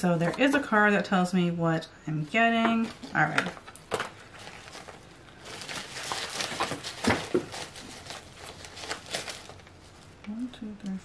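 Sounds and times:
paper and packaging rustling: 0:02.4 - 0:10.2.

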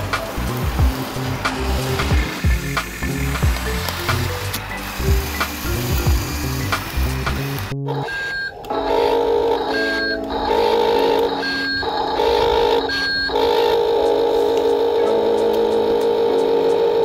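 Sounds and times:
buzzy electronic chord: 0:00.0 - 0:08.1, 0:08.7 - 0:17.0
short high beep: 0:11.0 - 0:11.9, 0:12.6 - 0:13.4.

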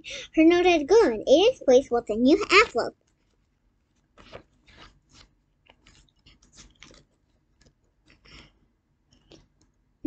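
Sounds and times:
paper rustles and crinkles: 0:03.1 - 0:08.2.

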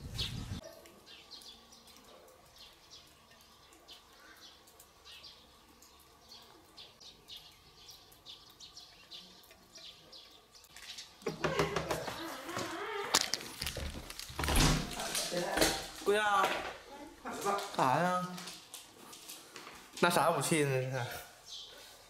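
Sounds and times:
small birds chirping: 0:00.0 - 0:14.2, 0:21.2 - 0:22.0.

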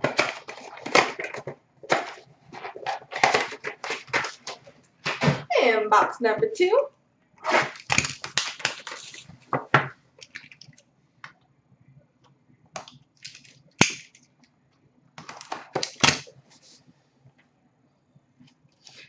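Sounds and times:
cardboard packaging rustling: 0:00.0 - 0:05.5, 0:07.5 - 0:10.6
sharp crack: 0:12.8 - 0:14.2.

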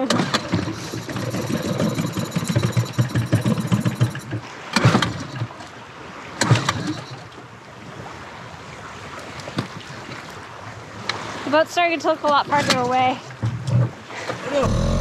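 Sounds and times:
outboard motor running: 0:00.0 - 0:07.4, 0:12.5 - 0:15.0.

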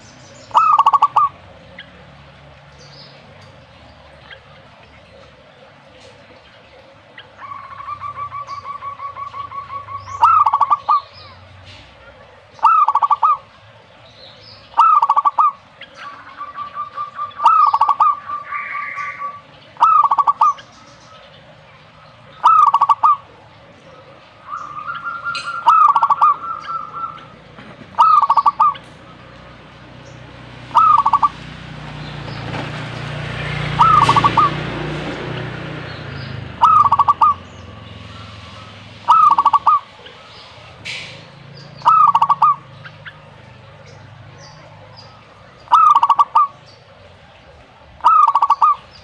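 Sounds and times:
rapid staccato bird trills: 0:00.0 - 0:02.0, 0:07.0 - 0:11.4, 0:12.6 - 0:13.6, 0:14.4 - 0:29.4, 0:30.0 - 0:31.4, 0:33.5 - 0:46.9, 0:48.0 - 0:49.0
dove cooing: 0:00.0 - 0:02.1, 0:06.2 - 0:13.6, 0:14.8 - 0:21.3, 0:21.9 - 0:29.7, 0:30.6 - 0:31.6, 0:33.6 - 0:41.2, 0:41.8 - 0:49.0.

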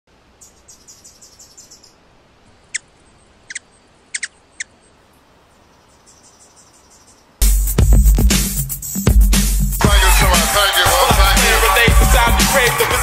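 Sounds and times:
faint high ticking bird chirps: 0:00.2 - 0:07.4.

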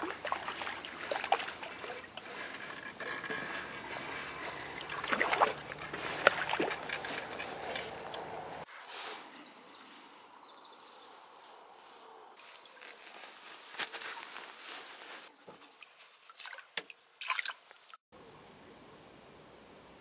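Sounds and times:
water splashing: 0:00.0 - 0:08.6, 0:15.8 - 0:18.0.

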